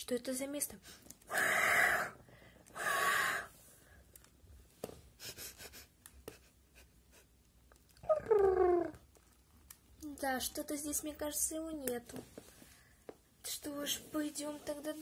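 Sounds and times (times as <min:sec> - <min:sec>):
person making hissing huffs: 0:01.3 - 0:03.7.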